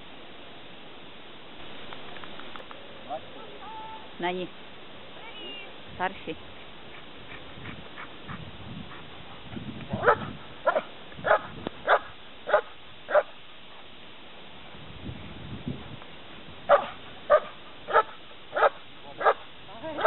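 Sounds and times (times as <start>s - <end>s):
dog barking: 10.0s - 13.3s, 16.7s - 19.4s.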